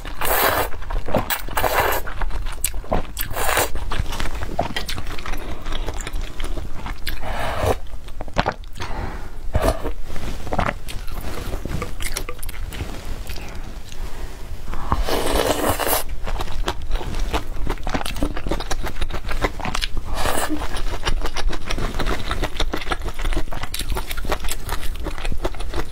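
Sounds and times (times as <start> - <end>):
wet chewing: 0.0 - 9.0, 14.8 - 25.9
noodles slurped: 0.1 - 3.9, 14.8 - 16.1.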